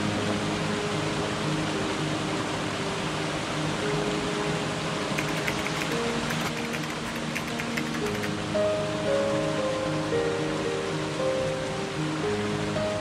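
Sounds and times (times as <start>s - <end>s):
soft low background music: 0.0s - 13.0s
water rushing over rocks: 4.1s - 8.7s.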